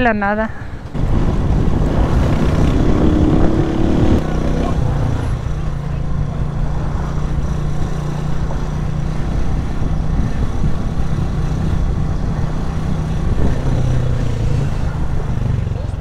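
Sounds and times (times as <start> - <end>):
road and wind noise: 0.0 - 16.0.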